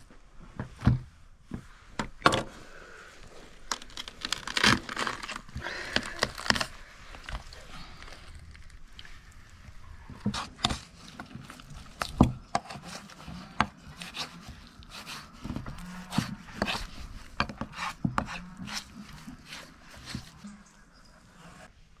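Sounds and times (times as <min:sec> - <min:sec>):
hand tool scraping: 0:10.2 - 0:21.7.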